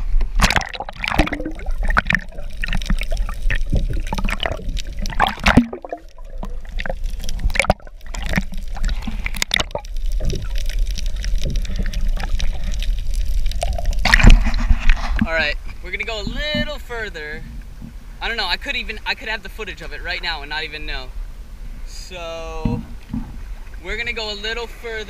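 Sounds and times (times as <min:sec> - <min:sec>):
water gurgling and sloshing: 0:00.0 - 0:19.1, 0:22.5 - 0:25.0
steady low rumble: 0:00.0 - 0:24.0
underwater clicks and pops: 0:00.1 - 0:15.3.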